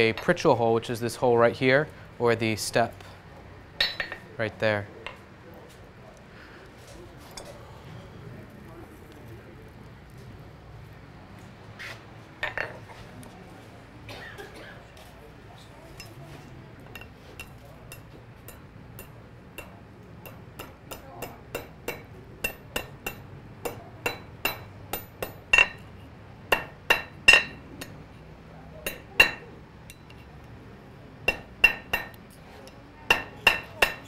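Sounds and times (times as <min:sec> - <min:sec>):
hammer striking iron on anvil: 0:03.8 - 0:04.2, 0:17.0 - 0:25.8, 0:26.5 - 0:28.0, 0:28.8 - 0:30.2, 0:31.3 - 0:32.2, 0:33.1 - 0:34.0.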